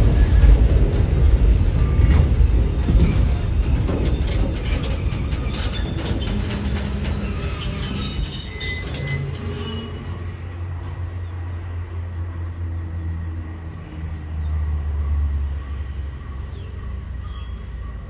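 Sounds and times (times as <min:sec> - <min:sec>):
wheels clicking over rail joints: 0:00.0 - 0:09.3
freight train rumbling: 0:00.0 - 0:18.0
train brakes squealing: 0:01.6 - 0:11.4, 0:15.2 - 0:18.0.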